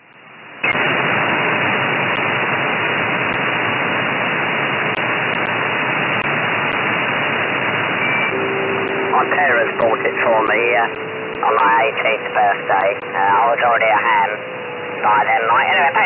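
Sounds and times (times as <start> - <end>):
radio static hiss: 0.6 - 16.0
faint radio ticks: 10.9 - 11.7.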